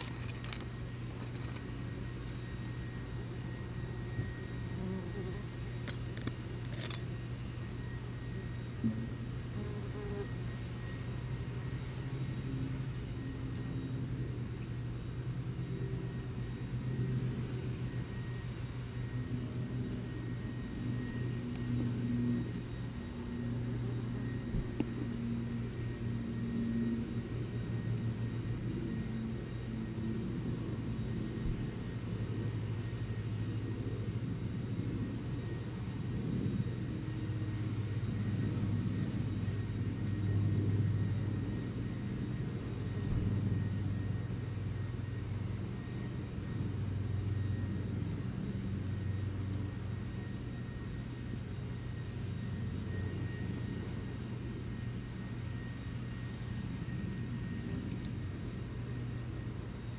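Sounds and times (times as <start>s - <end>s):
wasps buzzing: 3.6s - 7.0s, 9.4s - 10.5s.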